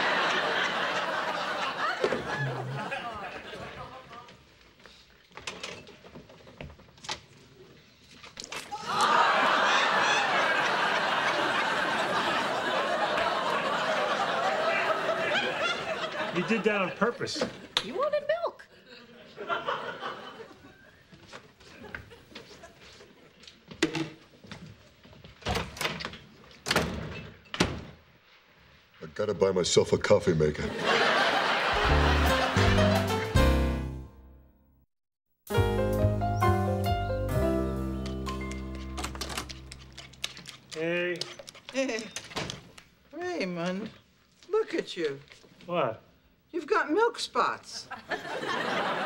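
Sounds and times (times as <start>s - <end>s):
studio audience laughing: 0.0s - 4.5s, 8.8s - 17.6s, 18.7s - 21.0s, 30.7s - 33.3s, 47.9s - 49.0s.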